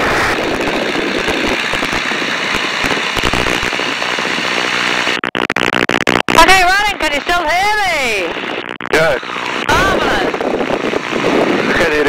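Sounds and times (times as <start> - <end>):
wind buffeting microphone: 0.0 - 5.0, 8.0 - 12.0
aircraft engine droning: 0.0 - 5.2, 6.4 - 12.0.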